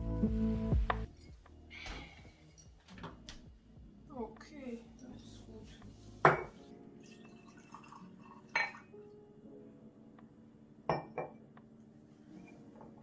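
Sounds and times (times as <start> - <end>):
glass clinking on stone counter: 6.2 - 8.9, 10.9 - 11.4.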